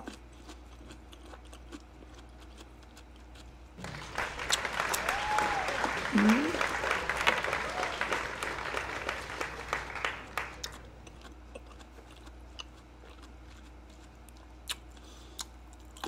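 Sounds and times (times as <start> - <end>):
person chewing: 0.0 - 3.8, 10.6 - 16.0
applause: 3.8 - 10.8.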